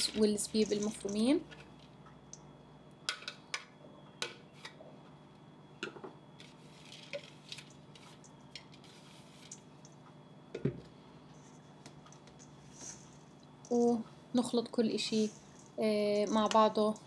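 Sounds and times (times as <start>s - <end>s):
utensils clinking on metal bowl: 0.0s - 1.4s, 15.0s - 17.0s
faint steady hum: 0.0s - 17.0s.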